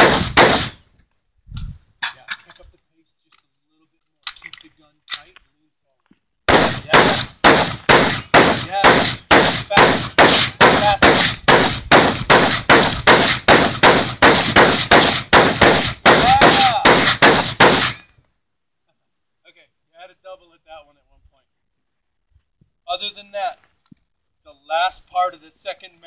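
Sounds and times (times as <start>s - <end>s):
rifle firing rapid shots: 0.0s - 0.8s, 6.5s - 18.0s.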